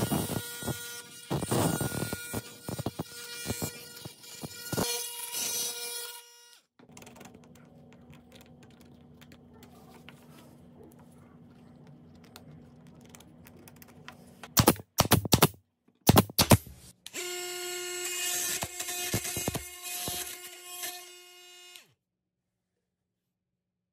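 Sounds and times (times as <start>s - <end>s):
multi-tool blade cutting nails: 0.0s - 6.2s, 14.6s - 17.3s, 18.0s - 21.1s
multi-tool blade cutting wood: 0.0s - 6.6s, 14.5s - 21.8s
faint low hum: 7.0s - 14.5s.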